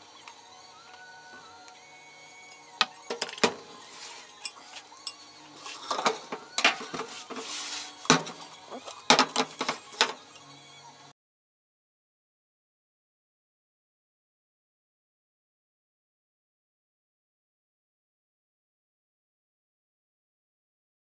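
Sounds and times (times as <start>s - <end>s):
utensils clinking on glass jug: 2.5s - 7.5s, 8.1s - 10.5s
spatula scraping: 3.2s - 10.4s.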